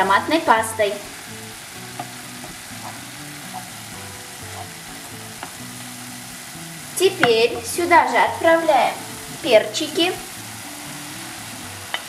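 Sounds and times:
meat sizzling in a pan: 0.0 - 12.0
wooden spatula knocking pan: 7.1 - 7.8.

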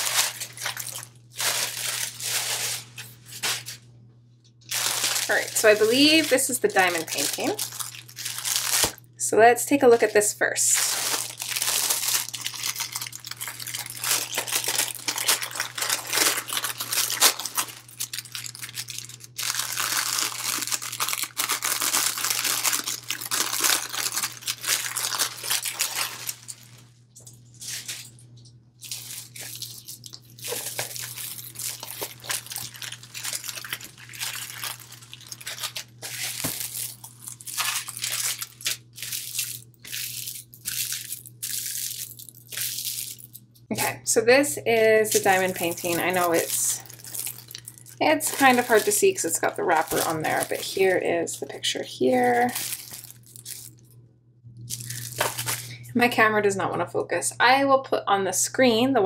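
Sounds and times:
plastic wrapping crinkling: 0.0 - 3.9, 4.6 - 9.1, 10.6 - 44.0, 44.7 - 54.0, 54.7 - 55.8.

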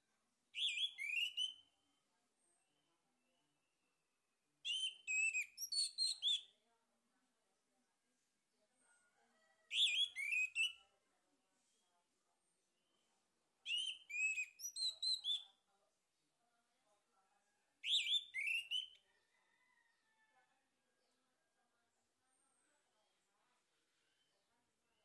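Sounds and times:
thrush singing whistled notes: 0.6 - 1.6, 4.7 - 6.4, 13.7 - 15.4, 17.8 - 19.0.

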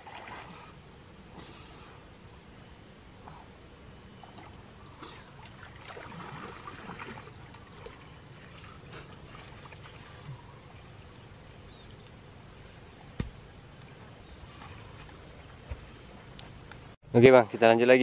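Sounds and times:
water sloshing and splashing: 0.0 - 0.8, 4.2 - 17.7.

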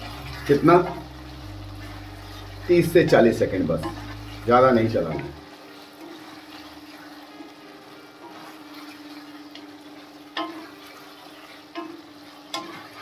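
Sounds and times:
low hum: 0.0 - 5.4
fruit sizzling in a pan: 0.0 - 13.0.

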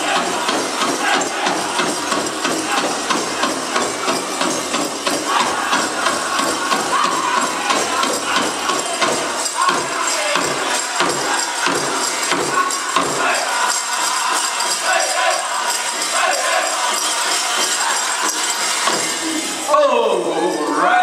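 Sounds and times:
big drum beating: 0.0 - 14.3
group singing: 0.0 - 19.6
jingling leg bells: 0.0 - 21.0.

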